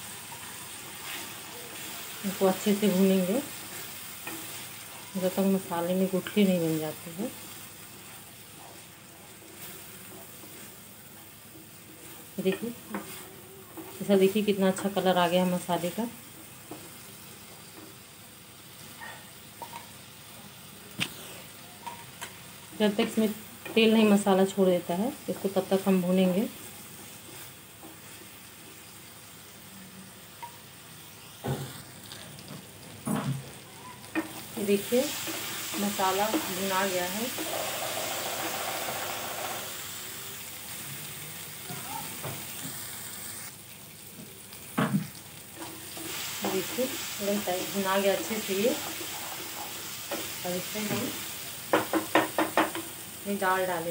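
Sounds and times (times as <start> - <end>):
masala sizzling in oil: 0.0 - 53.9
spatula knocking against pan: 51.7 - 52.8.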